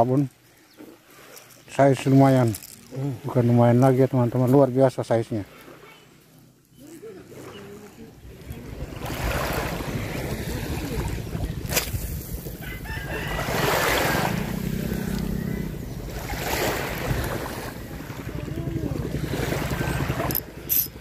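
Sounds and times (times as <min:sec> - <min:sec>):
wind rumbling on microphone: 0:08.1 - 0:21.0
waves washing onto pebbles: 0:09.0 - 0:12.4, 0:13.3 - 0:14.6, 0:16.2 - 0:18.0.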